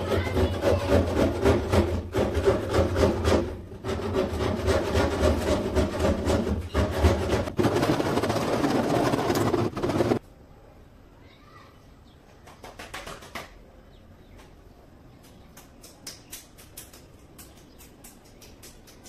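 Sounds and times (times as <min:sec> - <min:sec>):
scraping on plastic panelling: 0:00.1 - 0:10.2.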